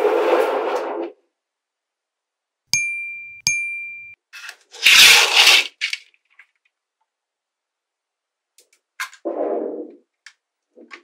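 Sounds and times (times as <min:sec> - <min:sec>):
bright ringing dings: 0:02.8 - 0:04.2.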